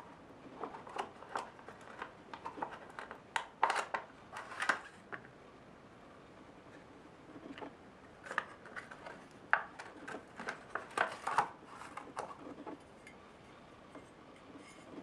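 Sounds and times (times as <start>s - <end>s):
plastic blister packaging crackling: 0.5s - 5.0s, 8.2s - 12.5s.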